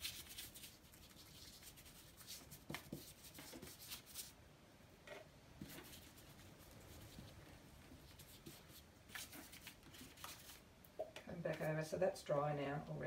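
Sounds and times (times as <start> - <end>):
paintbrush swishing over paper: 0.0 - 4.4, 5.6 - 10.6.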